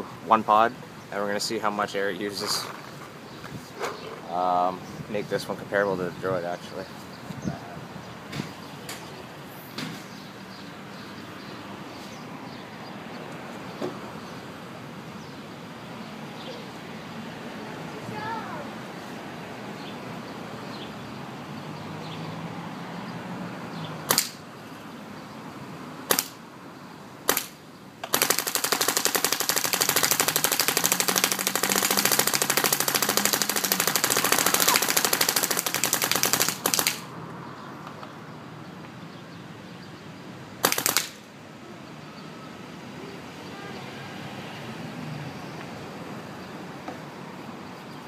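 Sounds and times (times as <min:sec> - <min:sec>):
paintball marker firing: 0:24.1 - 0:24.4, 0:26.1 - 0:26.4, 0:27.3 - 0:37.1, 0:40.6 - 0:41.2.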